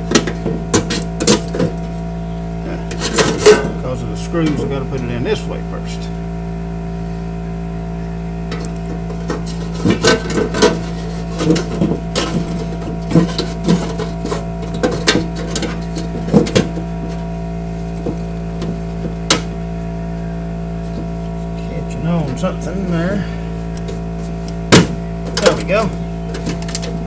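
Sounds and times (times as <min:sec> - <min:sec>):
steady hum: 0:00.0 - 0:27.0
wire grate rattling against metal: 0:02.9 - 0:03.8, 0:08.5 - 0:17.2.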